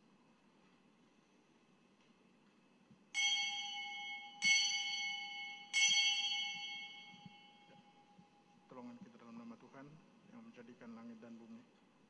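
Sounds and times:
bell ringing: 0:03.2 - 0:08.6.

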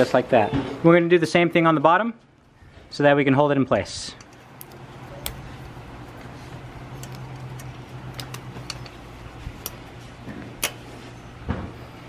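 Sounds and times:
steady low hum: 0:02.2 - 0:12.0
small clicks and taps: 0:06.1 - 0:09.0.

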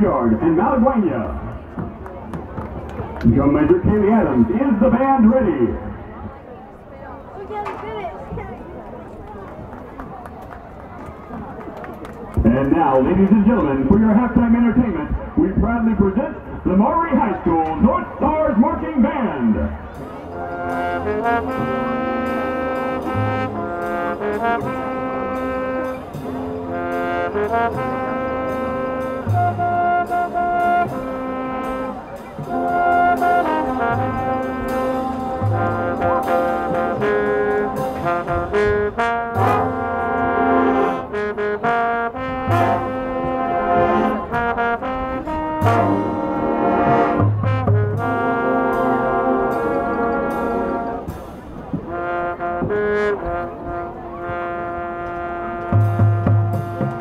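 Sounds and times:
brass chords and melody: 0:00.0 - 0:01.9, 0:02.7 - 0:06.2, 0:12.4 - 0:57.0
drumline strikes: 0:12.3 - 0:57.0.

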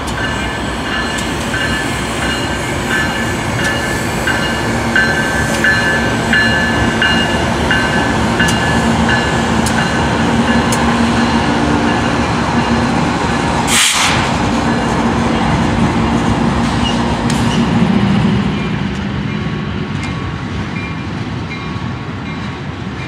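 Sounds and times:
diesel locomotive engines running: 0:00.0 - 0:23.0
train wheels rolling on rails: 0:00.0 - 0:23.0
brief hiss: 0:13.7 - 0:14.3.

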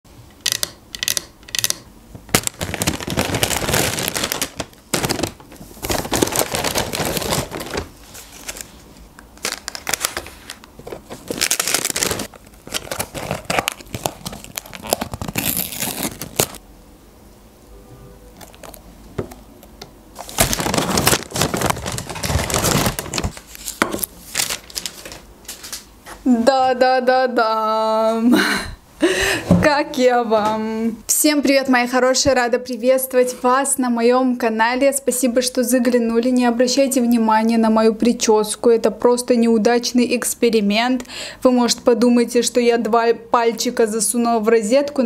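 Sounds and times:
paper packaging rustling: 0:02.3 - 0:16.6, 0:18.4 - 0:19.4, 0:20.2 - 0:25.9.

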